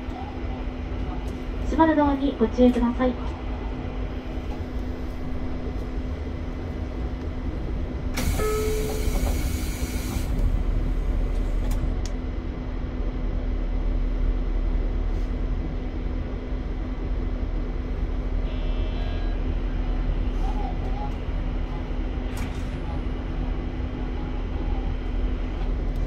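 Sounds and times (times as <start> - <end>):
electric train humming: 0.0 - 26.0.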